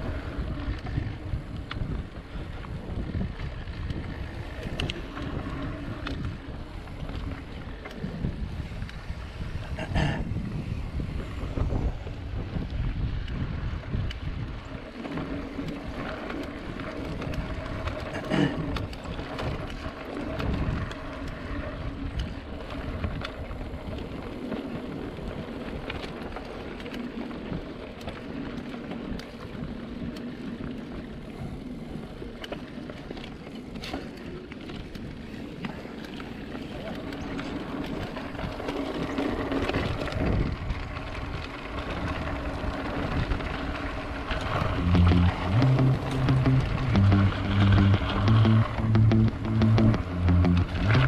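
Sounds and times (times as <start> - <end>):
wind buffeting microphone: 0.0 - 26.3, 34.6 - 49.0
bike rattling over bumps: 0.0 - 51.0
bike tyres rumbling on dirt: 0.0 - 51.0.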